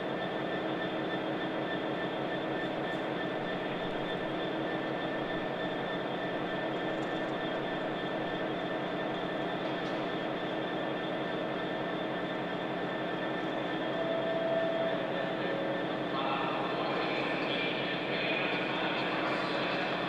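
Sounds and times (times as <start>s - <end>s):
locomotive engine idling: 0.0s - 20.0s
steady whine: 0.0s - 20.0s
brief higher tone: 13.9s - 15.4s.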